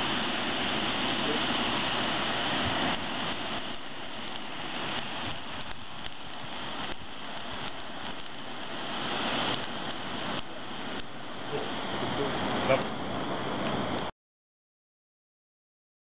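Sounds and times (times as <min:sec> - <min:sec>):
fireworks burning with a hiss: 0:00.0 - 0:14.1
small firework pops: 0:03.7 - 0:08.8, 0:09.4 - 0:11.2.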